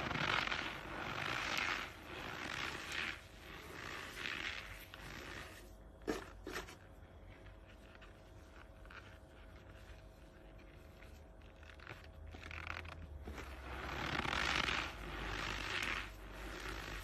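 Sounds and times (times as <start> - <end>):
hand crunching cornstarch: 0.0 - 5.6.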